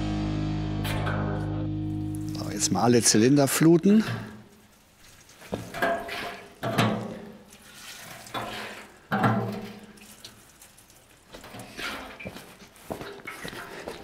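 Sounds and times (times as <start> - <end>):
petrol splashing and glugging: 3.9 - 14.0.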